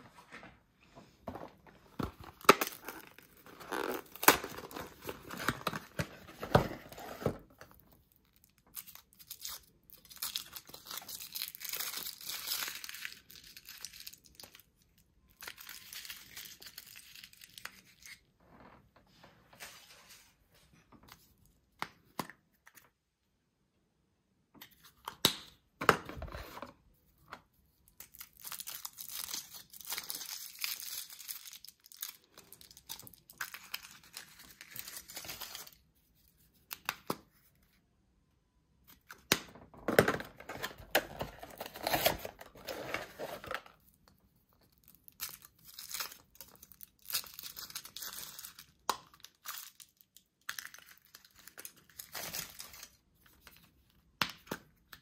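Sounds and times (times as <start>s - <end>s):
foil wrappers torn and crinkled: 2.2s - 6.0s, 28.0s - 35.8s, 44.8s - 53.0s.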